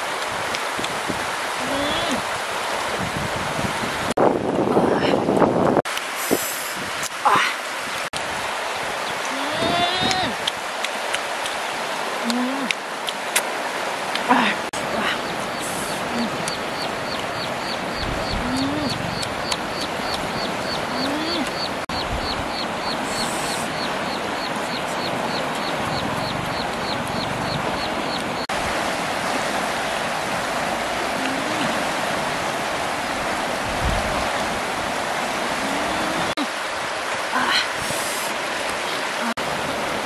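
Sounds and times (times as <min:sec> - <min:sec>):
river water rushing over rocks: 0:00.0 - 0:05.1, 0:05.9 - 0:40.0
rapid even chirping: 0:15.2 - 0:28.5.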